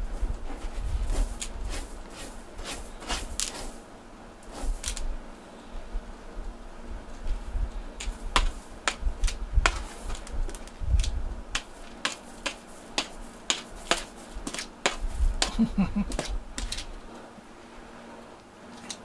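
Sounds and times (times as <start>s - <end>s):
cat scratching litter: 0.5s - 3.8s, 4.4s - 5.1s, 8.0s - 16.9s.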